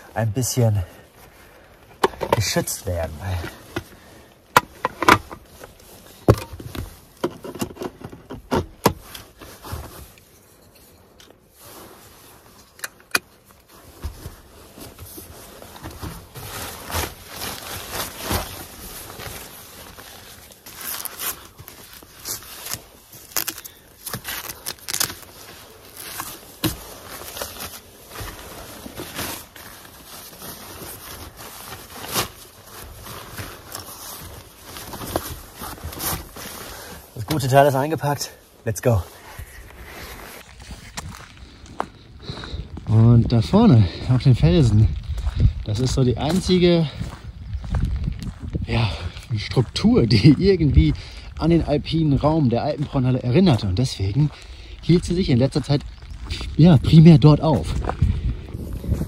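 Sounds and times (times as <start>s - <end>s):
fabric rustling and crinkling: 0.0s - 59.0s.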